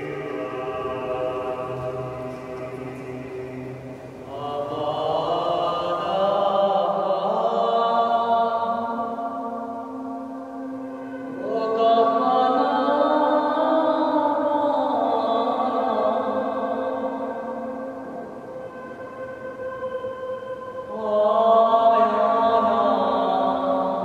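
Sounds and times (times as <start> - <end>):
steady low drone: 0.0 - 6.4
voices chanting held notes: 0.0 - 24.0.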